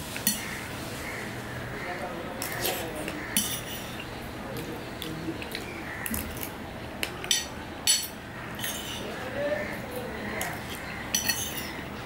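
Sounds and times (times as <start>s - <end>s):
metal spoon clinking on plate: 3.4s - 4.0s, 7.2s - 9.1s, 10.4s - 11.8s.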